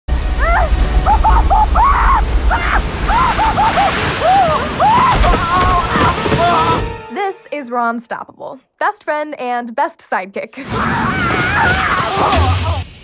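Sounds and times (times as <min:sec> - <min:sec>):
deep steady rumble: 0:00.1 - 0:06.0.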